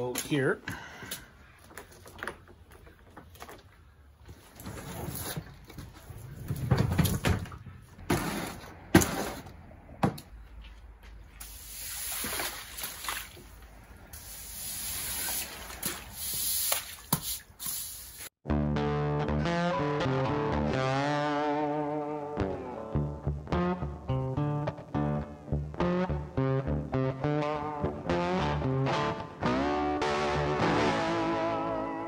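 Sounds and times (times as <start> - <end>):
sharp knocks and bumps: 5.7 - 10.3
footsteps splashing in water: 11.1 - 13.8, 14.9 - 17.8
push broom swishing through water: 11.4 - 13.6, 14.7 - 17.8.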